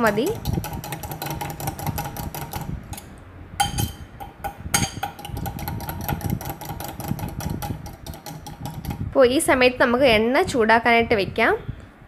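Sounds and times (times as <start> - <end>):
fork clinking against bowl: 2.9 - 5.3.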